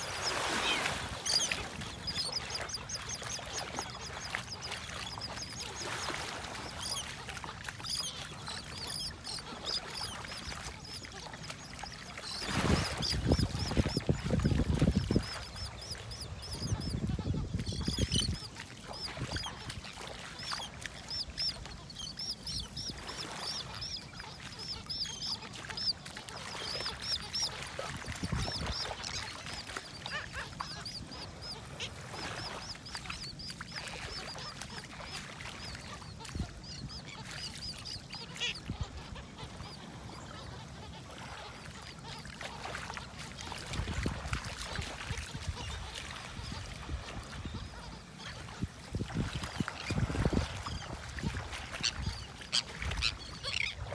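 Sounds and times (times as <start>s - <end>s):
gulls and terns calling: 0.0s - 53.9s
wind rumble on microphone: 12.4s - 18.5s, 27.8s - 28.8s, 48.5s - 52.1s.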